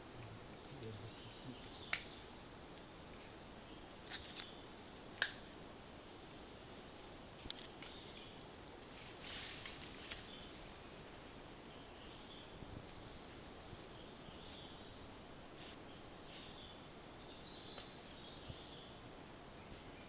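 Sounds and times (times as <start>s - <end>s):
sharp clicks and snaps: 1.9s - 2.1s, 5.2s - 5.7s
short rustle: 8.9s - 10.3s.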